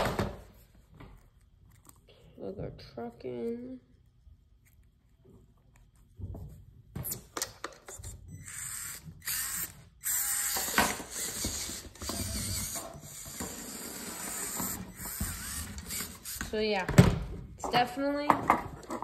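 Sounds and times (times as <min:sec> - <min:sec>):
electric motor and gears whining: 0:08.0 - 0:16.8.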